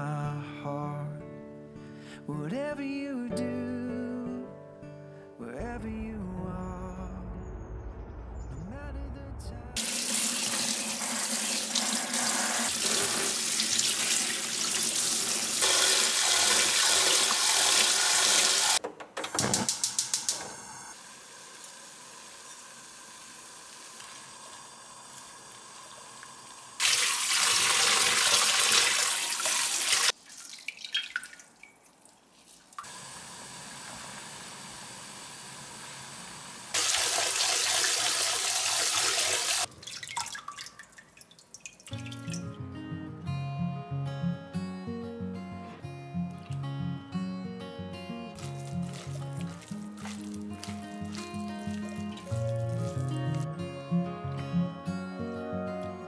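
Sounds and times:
faucet running into steel sink: 9.8s - 18.8s, 21.1s - 31.8s, 36.7s - 42.4s
quiet kitchen sounds: 9.8s - 38.7s.

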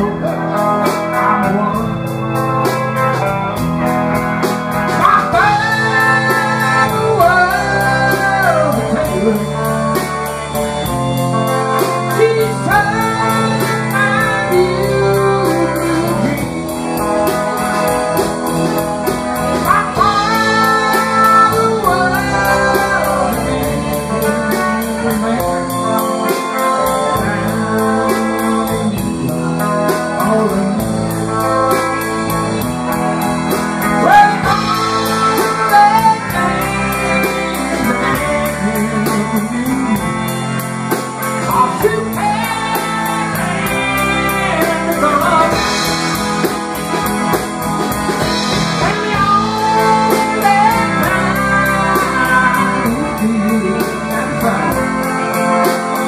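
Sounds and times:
person singing: 0.0s - 3.3s, 4.7s - 56.0s
blues-rock band playing: 0.0s - 56.0s.

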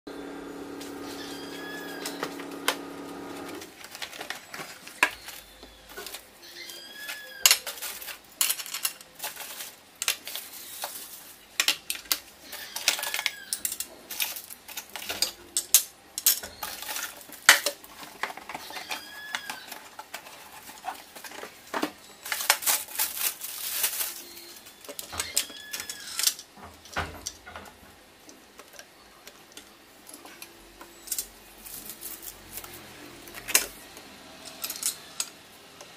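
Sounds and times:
plastic wrapping crinkling: 0.8s - 15.2s, 16.4s - 26.4s, 29.5s - 34.0s
hard parts clinking on glass: 5.0s - 11.0s, 11.6s - 17.8s, 34.4s - 35.4s.

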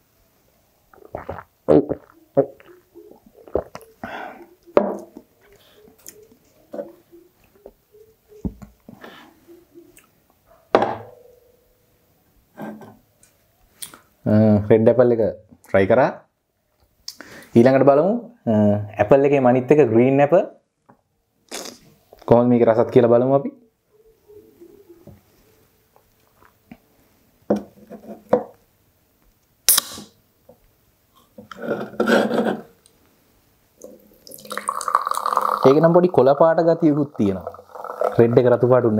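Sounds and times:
can opening pop and hiss: 29.6s - 30.2s
can rustling: 33.8s - 38.4s.

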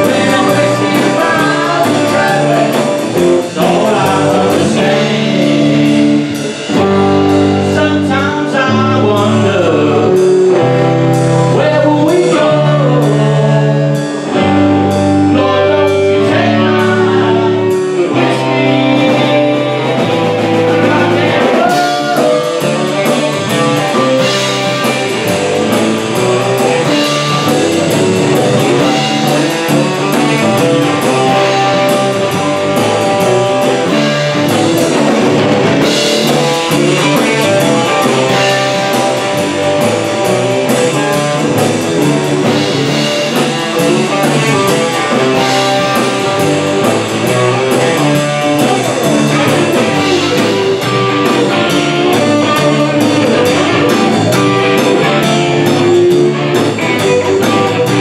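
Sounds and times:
man singing into a microphone: 0.0s - 10.7s, 11.4s - 14.5s, 15.2s - 24.3s
bass guitar: 0.0s - 58.0s
drum kit: 0.0s - 58.0s
electric guitar: 0.0s - 58.0s.

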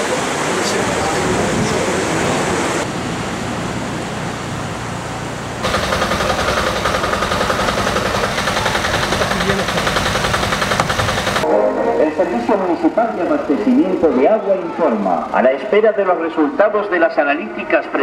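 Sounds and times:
steady rushing noise: 0.0s - 17.9s
truck engine and pump running: 2.8s - 11.5s.

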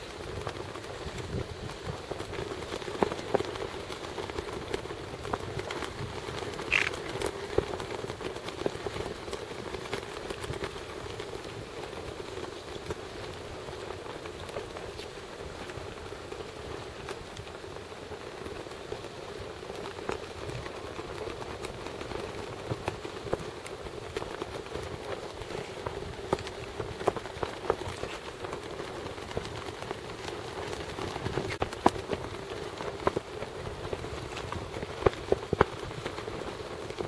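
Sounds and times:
crackling outdoor ambience: 0.0s - 37.0s
small clicks: 6.7s - 7.3s.

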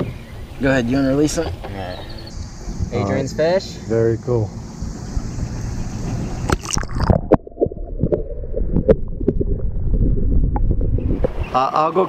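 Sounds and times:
water splashing: 4.6s - 11.8s
muffled underwater gurgling: 4.9s - 11.7s
small underwater knocks: 10.5s - 11.5s.

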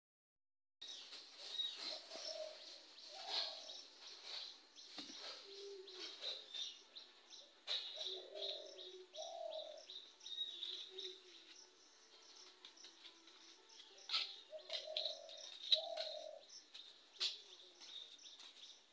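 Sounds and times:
small birds chirping: 0.8s - 18.9s
dove cooing: 1.8s - 4.4s, 5.1s - 6.8s, 7.7s - 10.0s, 10.7s - 11.5s, 14.1s - 16.5s.

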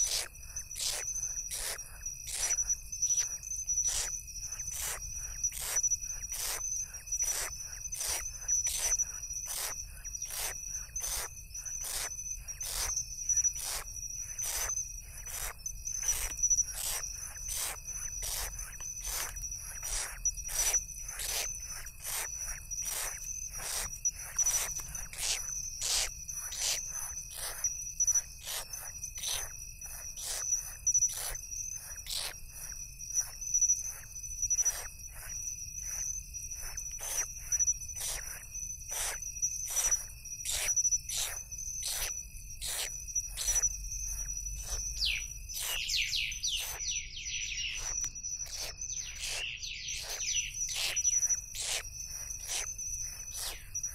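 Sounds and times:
insects trilling: 0.0s - 53.9s
owl chicks rasping hisses: 14.4s - 27.6s, 38.0s - 43.6s, 44.6s - 46.8s, 47.8s - 52.7s, 53.3s - 53.7s
high chirping calls: 41.2s - 53.9s.

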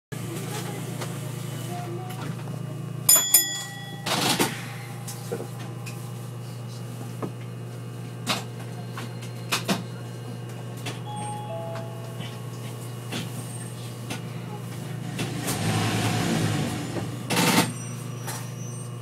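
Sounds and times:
tram interior hum: 0.2s - 19.0s
sharp metallic rings: 3.1s - 4.9s
two short tones: 11.1s - 12.3s.

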